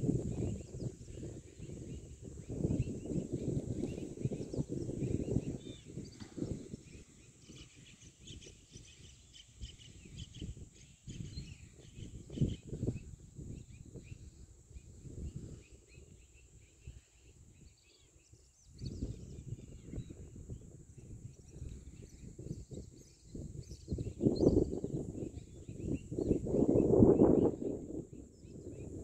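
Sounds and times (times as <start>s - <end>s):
wind buffeting microphone: 0.0s - 29.0s
small birds chirping: 0.2s - 29.0s.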